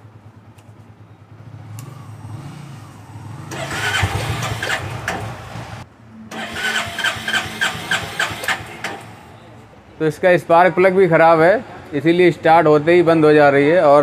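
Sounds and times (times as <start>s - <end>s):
electric starter cranking: 3.5s - 5.4s, 6.3s - 9.0s.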